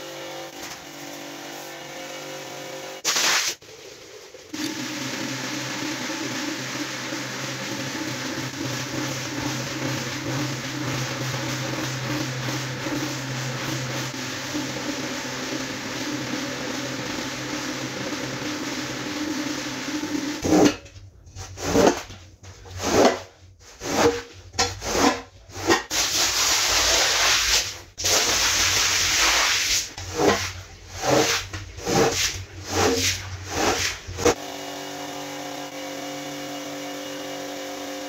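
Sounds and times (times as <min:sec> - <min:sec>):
floor scrubber motor humming: 0:03.7 - 0:20.4.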